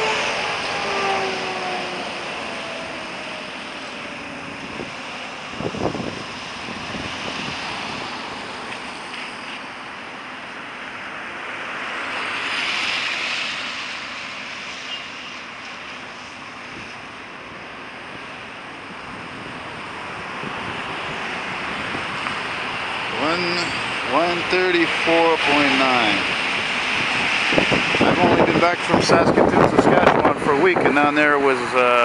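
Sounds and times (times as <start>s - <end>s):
vehicle passing: 0.0s - 10.2s
tyres hissing on wet road: 0.0s - 32.0s.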